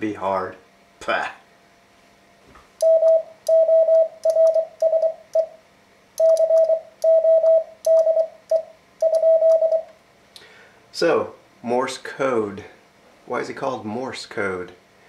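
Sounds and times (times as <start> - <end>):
morse code beeps: 2.8 - 5.5, 6.2 - 9.9
telegraph key clicks: 6.2 - 7.2.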